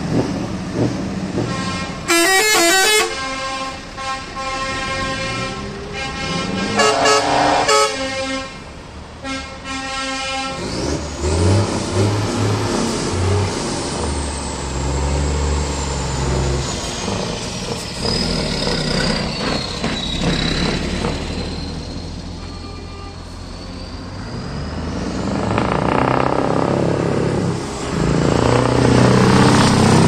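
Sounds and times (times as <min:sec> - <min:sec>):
truck air horn blasts: 0:01.4 - 0:10.8, 0:22.4 - 0:24.0
truck engine passing: 0:03.8 - 0:09.2, 0:10.5 - 0:22.4, 0:23.2 - 0:30.0.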